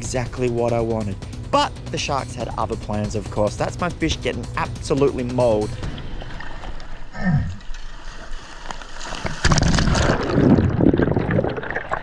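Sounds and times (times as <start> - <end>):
sea water splashing and bubbling: 4.3 - 12.0.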